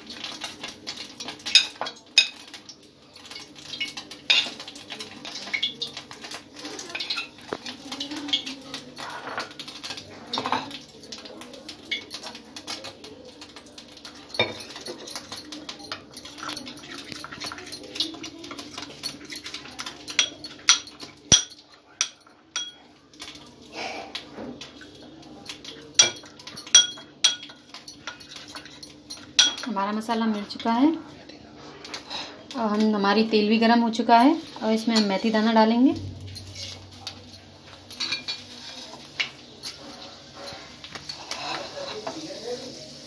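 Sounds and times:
spoon clinking against glass: 0:14.1 - 0:22.8, 0:25.4 - 0:29.7, 0:36.0 - 0:40.6
spoon scraping in glass bowl: 0:36.2 - 0:41.7.

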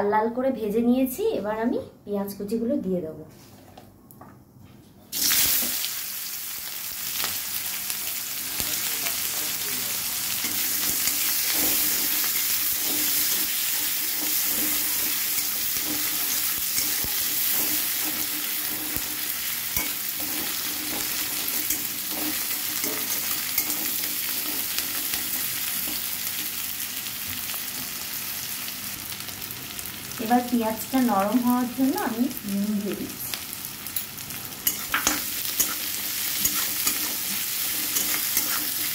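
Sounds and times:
onions sizzling in hot oil: 0:05.1 - 0:38.9
metal spatula scraping a pan: 0:10.4 - 0:26.0, 0:34.6 - 0:38.9.

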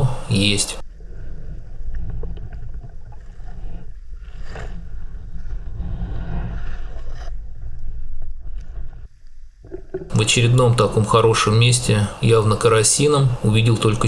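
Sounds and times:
low underwater rumble: 0:00.8 - 0:11.0
water swishing: 0:00.8 - 0:14.0.

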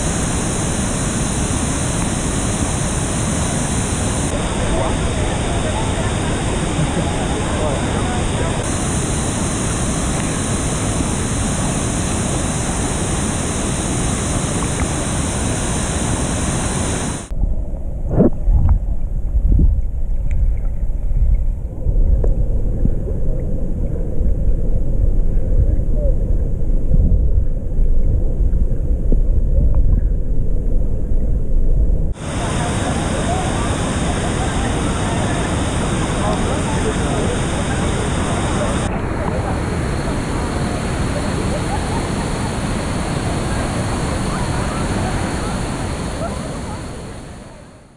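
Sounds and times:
waterfall rushing: 0:00.0 - 0:17.3, 0:32.2 - 0:47.7
dull underwater rumble: 0:00.0 - 0:38.9.

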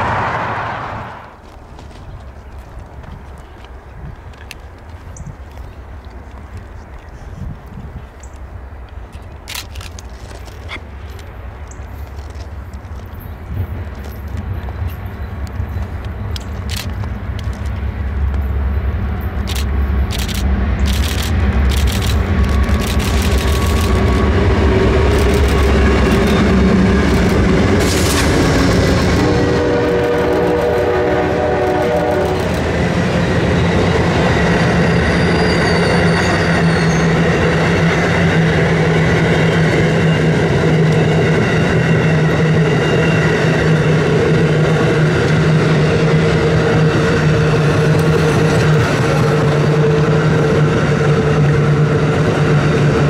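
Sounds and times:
diesel locomotives rumbling by: 0:00.0 - 0:53.0
wheel-on-rail noise: 0:00.0 - 0:53.0
train horn chord: 0:25.8 - 0:32.6.

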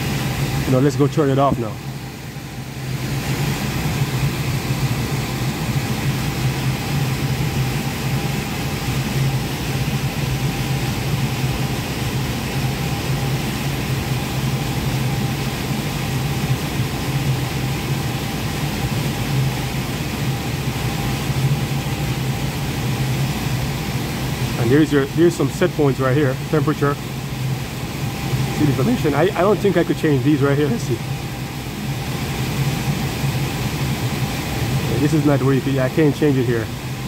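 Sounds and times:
air conditioner fan running: 0:00.0 - 0:37.0.

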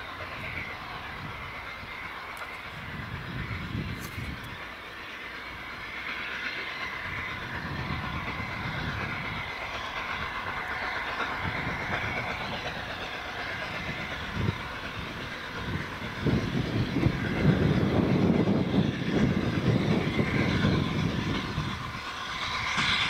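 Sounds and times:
train wheels rumbling on rail: 0:00.0 - 0:23.0.

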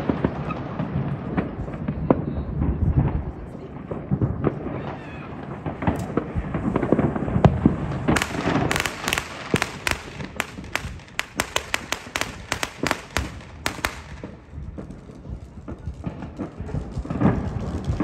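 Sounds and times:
fireworks booming: 0:00.0 - 0:18.0
sharp firecracker cracks: 0:05.6 - 0:06.9, 0:07.6 - 0:15.0.

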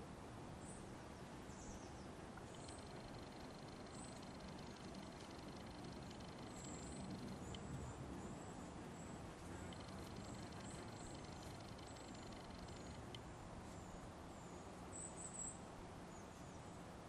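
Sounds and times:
high thin bird chirps: 0:02.5 - 0:07.6, 0:09.6 - 0:13.2
faint fast even buzz: 0:02.5 - 0:07.7, 0:09.4 - 0:13.2.

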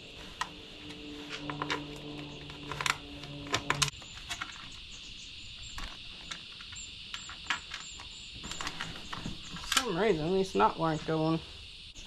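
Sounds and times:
low hum: 0:00.0 - 0:04.0
birds chirping: 0:00.0 - 0:12.0
insects droning: 0:00.0 - 0:12.0.

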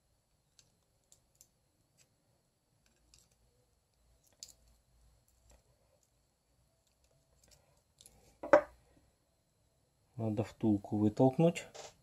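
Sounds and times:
small metal tools clicking: 0:04.2 - 0:04.7.

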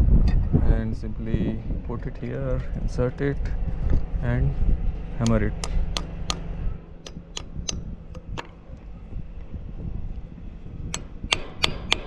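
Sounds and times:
hammer striking steel bolt: 0:10.9 - 0:12.0.

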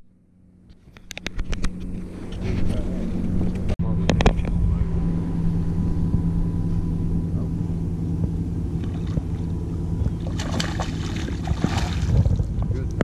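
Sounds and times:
boat motor hum: 0:00.0 - 0:13.0
fish thrashing and splashing: 0:10.2 - 0:12.4.

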